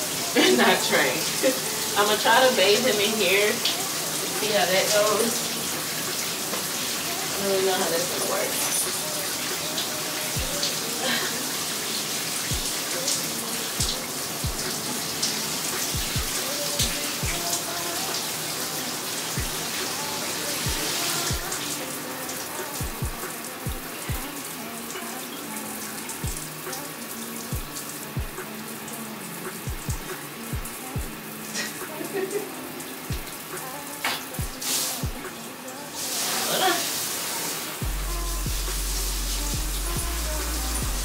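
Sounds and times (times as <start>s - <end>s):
shower spray hissing: 0.0s - 41.0s
music with deep bass beat: 10.4s - 10.7s, 12.5s - 12.9s, 13.8s - 14.8s, 15.8s - 17.5s, 19.4s - 19.7s, 20.6s - 21.7s, 22.8s - 24.4s, 26.2s - 26.8s, 27.5s - 28.5s, 29.5s - 31.2s, 33.1s - 33.6s, 34.4s - 35.3s, 37.8s - 41.0s.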